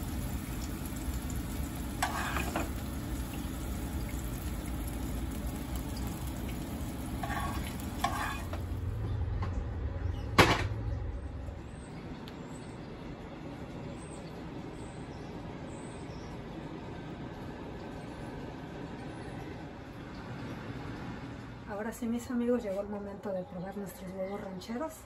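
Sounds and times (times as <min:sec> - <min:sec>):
hot oil sizzling in a frying pan: 0:00.0 - 0:09.0
spatula scraping a pan: 0:01.9 - 0:02.8, 0:07.1 - 0:08.7.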